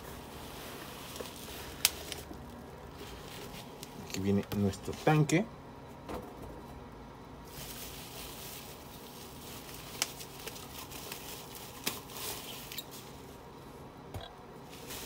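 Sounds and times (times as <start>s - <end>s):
bubble wrap rustling and crinkling: 0.0s - 5.2s, 7.4s - 13.5s, 14.6s - 15.0s
sharp plastic crackles: 0.4s - 4.7s, 7.5s - 13.2s.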